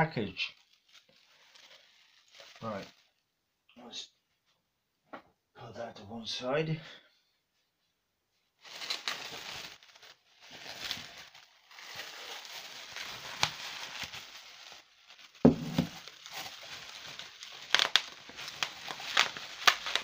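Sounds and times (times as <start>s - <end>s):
bubble wrap crinkling and snapping: 0.4s - 3.2s, 8.6s - 20.0s
loud knock: 15.5s - 15.9s.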